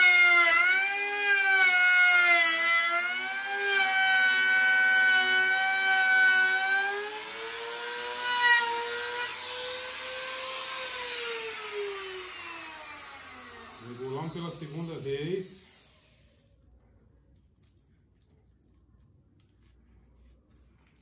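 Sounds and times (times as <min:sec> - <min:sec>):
router motor whining: 0:00.0 - 0:16.4.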